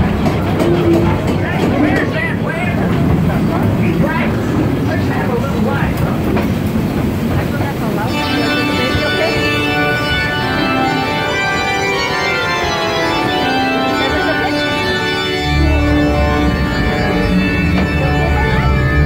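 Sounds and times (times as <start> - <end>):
organ-like chords: 8.0 - 19.0.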